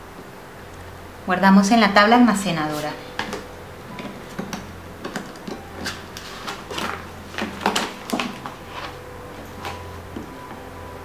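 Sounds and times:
plastic sheet taps and rustles: 0:04.0 - 0:09.0.

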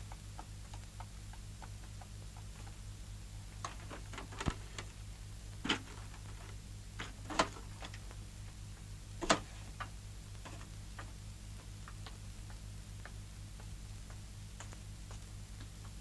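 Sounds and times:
sharp clicks and knocks: 0:05.6 - 0:08.2, 0:09.2 - 0:16.0.

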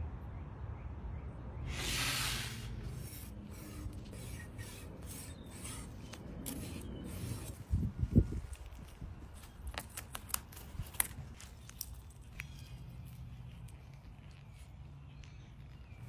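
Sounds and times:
short loud hiss: 0:01.7 - 0:02.8
knife scraping on cutting board: 0:02.9 - 0:07.6.

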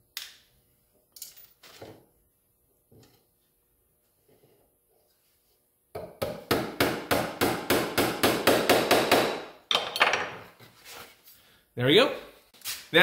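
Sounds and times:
hammer tapping a nail: 0:06.0 - 0:09.4.

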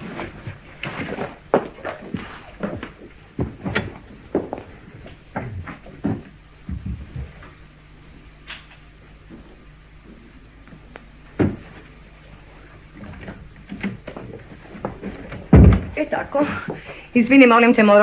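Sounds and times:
books knocking and clicking: 0:11.4 - 0:11.8, 0:13.1 - 0:16.0
books thumping: 0:11.4 - 0:11.8, 0:13.2 - 0:16.0.

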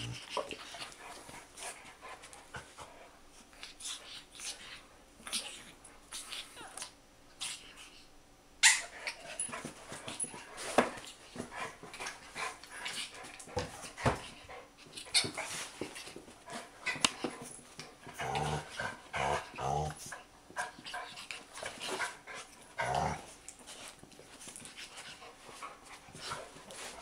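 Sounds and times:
dogs scuffling: 0:20.6 - 0:27.0.

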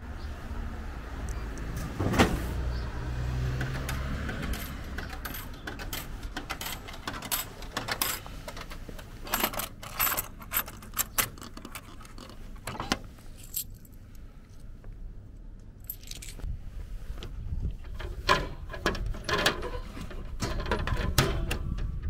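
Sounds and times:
coins clinking: 0:03.8 - 0:08.3, 0:09.2 - 0:12.3, 0:15.8 - 0:16.4.

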